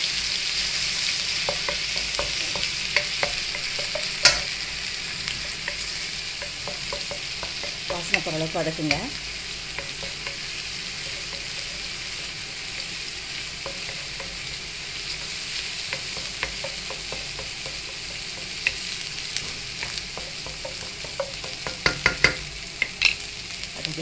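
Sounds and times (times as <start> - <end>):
oil sizzling: 0.0 - 24.0
spatula scraping a pan: 0.6 - 23.2.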